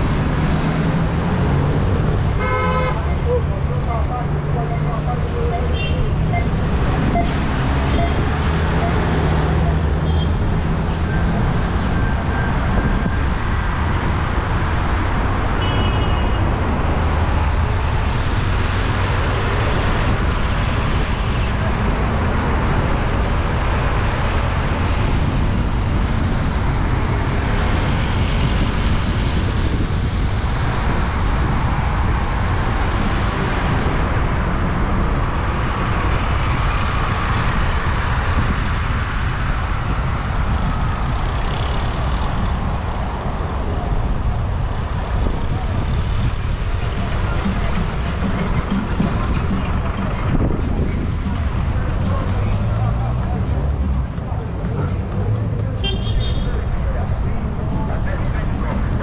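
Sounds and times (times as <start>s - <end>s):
buses and cars passing: 0.0s - 59.0s.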